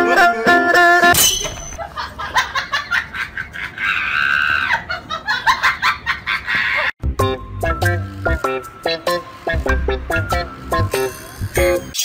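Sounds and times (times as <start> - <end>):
person cackling laughter: 1.8 - 6.9
drawn-out squeal: 10.2 - 12.0.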